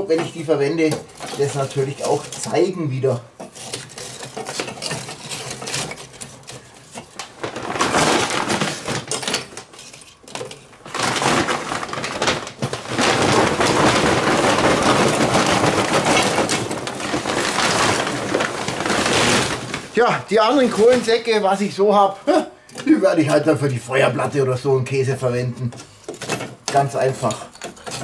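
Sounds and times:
charcoal pouring from paper sack: 10.9 - 21.5.

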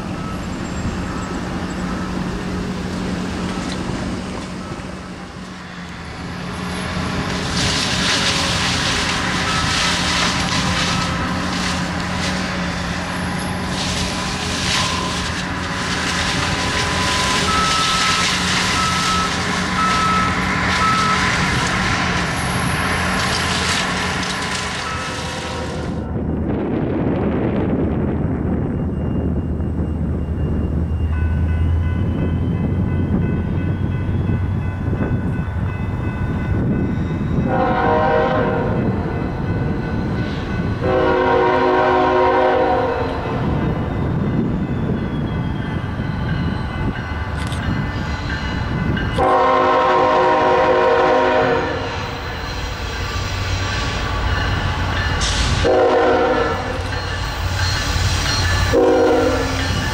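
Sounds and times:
locomotive rumble: 0.0 - 59.9
locomotive air horn blasts: 37.5 - 38.8, 40.8 - 43.3, 49.2 - 52.0, 55.6 - 56.8, 58.7 - 59.7.

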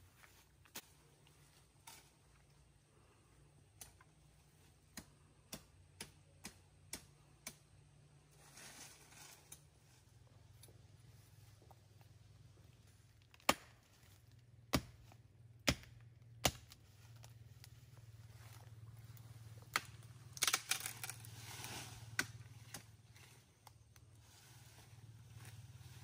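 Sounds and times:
rustle of leaves: 8.3 - 10.2, 20.4 - 26.0
machete chopping tree: 13.3 - 13.9, 14.7 - 16.8.

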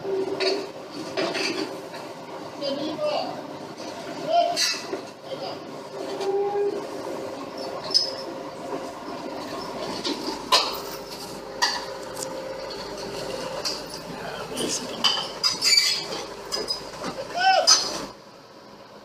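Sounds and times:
excavator engine humming: 5.2 - 19.0.

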